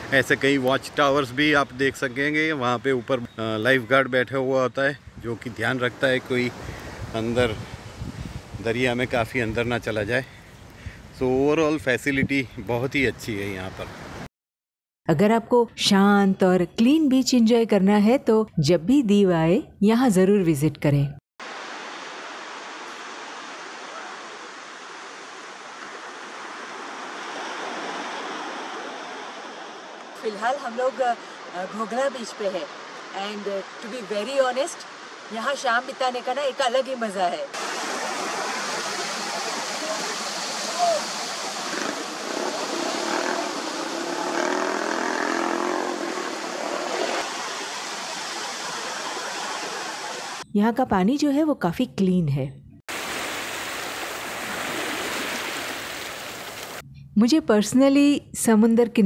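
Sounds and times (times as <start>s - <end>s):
sea surf: 0.0s - 3.2s, 21.4s - 50.4s, 52.9s - 56.8s
waves washing on sandy shore: 21.4s - 50.4s, 52.9s - 56.8s.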